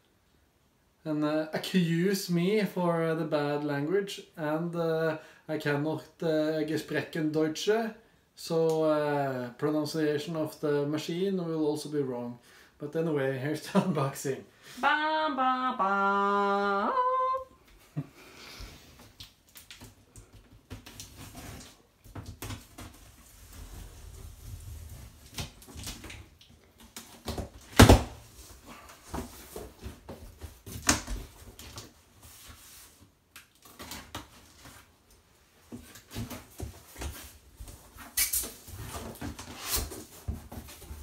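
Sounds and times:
cardboard and tape rustling: 0:19.0 - 0:41.0.

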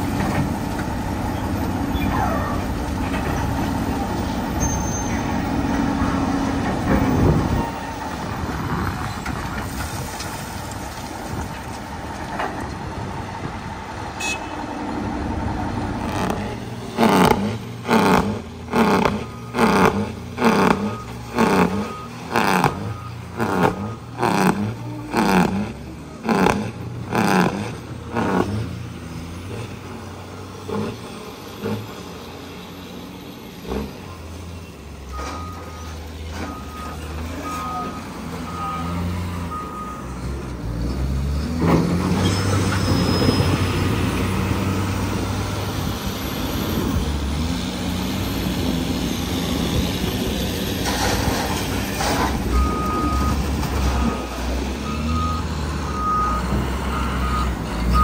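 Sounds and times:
diesel engines running: 0:00.0 - 0:58.0
reversing alarm beeping: 0:20.6 - 0:24.5, 0:35.1 - 0:40.2, 0:52.5 - 0:58.0.

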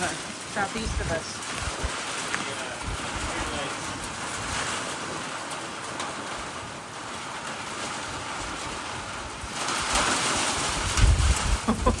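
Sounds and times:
wind buffeting microphone: 0:00.0 - 0:05.0, 0:08.0 - 0:12.0
heavy rain: 0:00.0 - 0:12.0.

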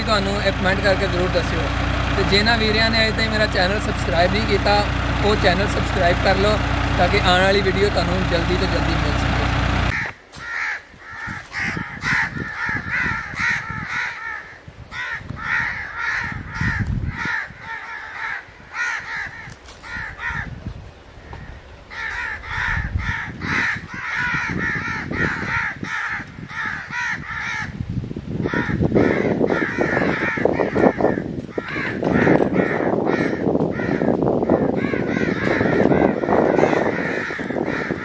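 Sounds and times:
low rumbling noise: 0:00.0 - 0:10.1
birds calling: 0:00.0 - 0:27.8, 0:28.4 - 0:38.0.

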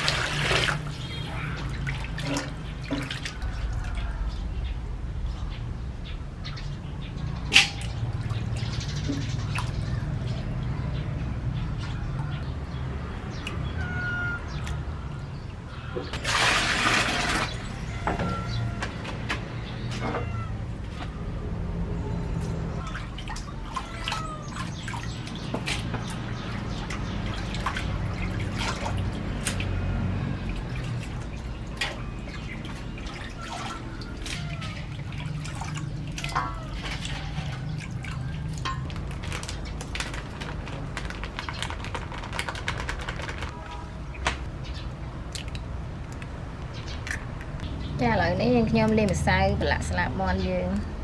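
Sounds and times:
wet dripping and squelching: 0:00.0 - 0:04.2, 0:07.5 - 0:10.8, 0:22.4 - 0:44.5.

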